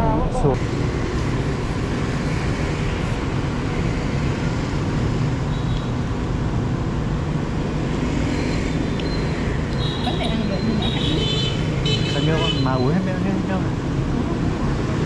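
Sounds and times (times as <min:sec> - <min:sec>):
road traffic: 0:00.0 - 0:15.0.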